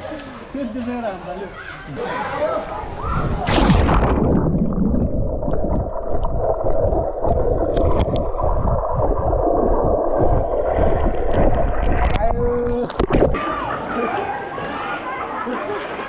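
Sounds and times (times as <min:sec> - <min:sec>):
muffled underwater water rush: 0:02.6 - 0:14.0
splash into pool: 0:03.0 - 0:06.3.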